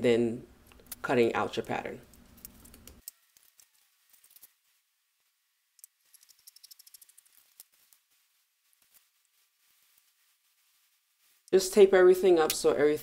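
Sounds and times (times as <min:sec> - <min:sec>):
paper rustle: 0:02.4 - 0:04.9, 0:06.0 - 0:11.5.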